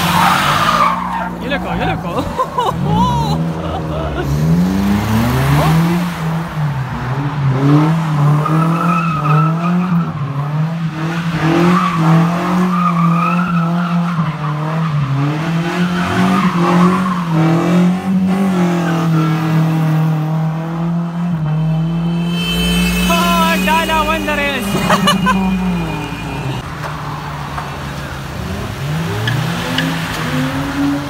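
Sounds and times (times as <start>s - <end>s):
car engine revving hard: 0.0s - 23.7s
tyres squealing: 21.5s - 26.6s.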